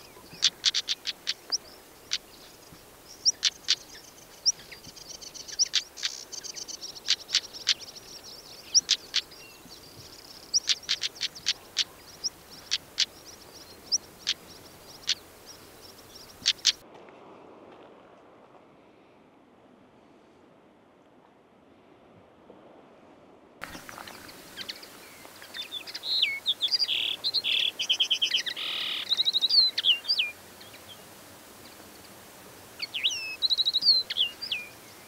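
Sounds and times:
high twittering birdsong: 0.0s - 16.8s, 23.6s - 31.0s, 32.8s - 35.0s
songbirds sharp clicking calls: 0.0s - 16.8s, 23.6s - 31.0s, 32.8s - 35.0s
thin high bird chirps: 0.0s - 16.8s, 23.6s - 30.9s, 32.8s - 35.0s.

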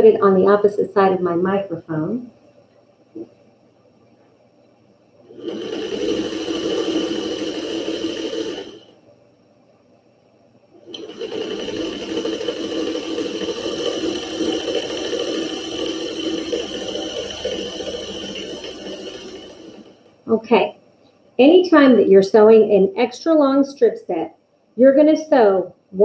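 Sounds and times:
sewing machine running: 5.3s - 8.9s, 10.8s - 20.2s.

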